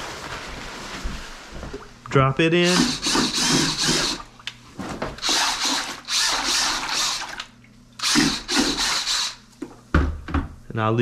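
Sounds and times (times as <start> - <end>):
drill churning water in bucket: 2.6 - 4.3, 5.2 - 9.5.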